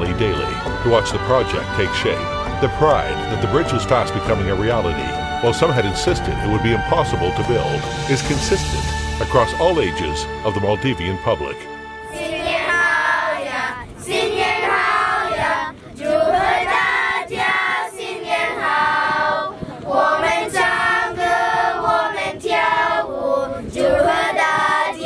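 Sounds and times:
children singing in chorus: 12.1 - 25.0.

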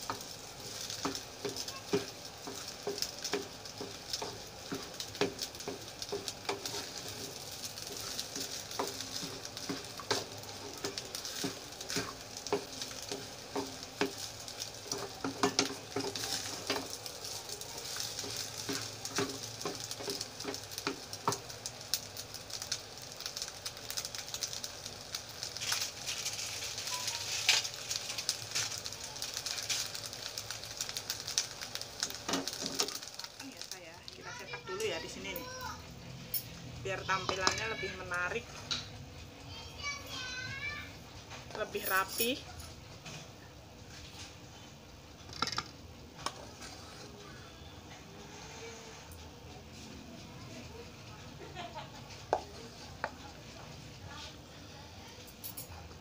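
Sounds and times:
rice sizzling in hot oil: 0.0 - 56.0
wooden spatula scraping a pan: 14.9 - 21.0, 46.3 - 47.2, 48.1 - 49.1.

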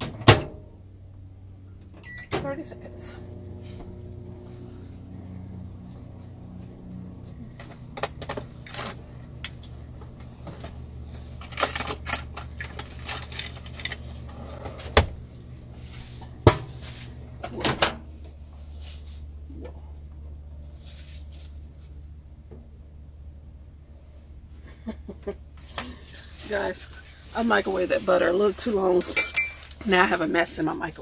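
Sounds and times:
microwave oven humming: 0.0 - 27.9.

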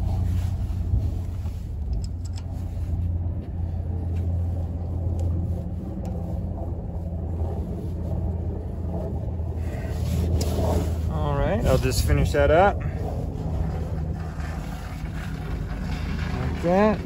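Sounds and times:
low mechanical rumble: 0.0 - 17.0.

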